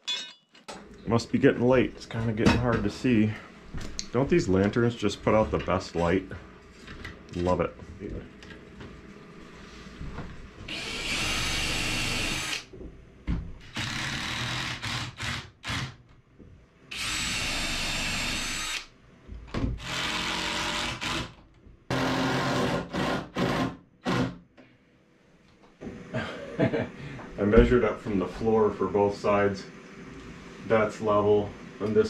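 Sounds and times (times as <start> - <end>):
cordless drill driving screws: 10.7 - 12.6, 13.7 - 16.0, 16.9 - 18.9, 19.8 - 24.3.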